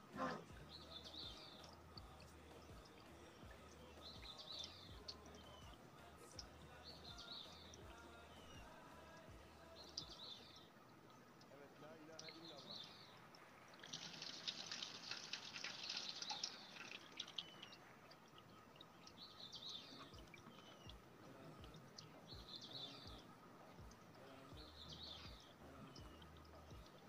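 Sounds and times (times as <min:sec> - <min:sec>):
faint high chirps: 0:00.0 - 0:11.2, 0:15.9 - 0:27.0
corn husk crinkling: 0:13.8 - 0:17.5.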